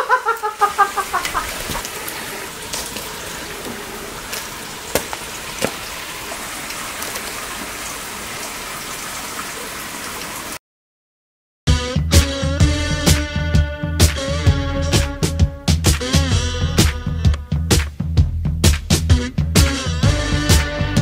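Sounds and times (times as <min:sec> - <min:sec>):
steady rain hiss: 0:00.0 - 0:10.6.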